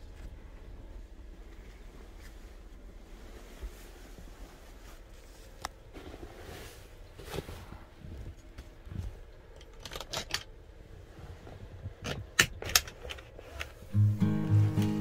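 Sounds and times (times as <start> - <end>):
acoustic guitar music: 13.9 - 15.0.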